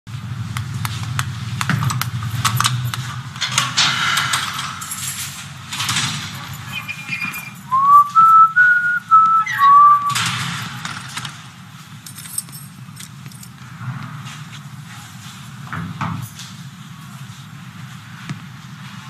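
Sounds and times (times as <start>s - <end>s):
keys jangling: 1.8s - 13.6s
person whistling a tune: 7.7s - 10.2s.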